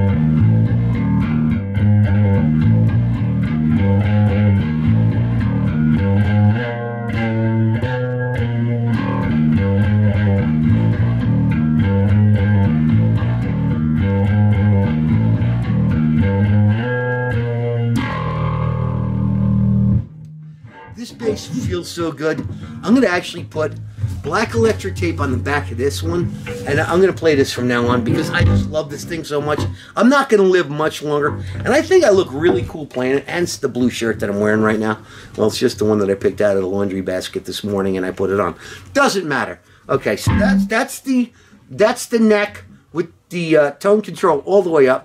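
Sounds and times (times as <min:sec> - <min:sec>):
bass guitar riff: 0:00.0 - 0:30.0, 0:31.0 - 0:33.1, 0:40.1 - 0:41.5.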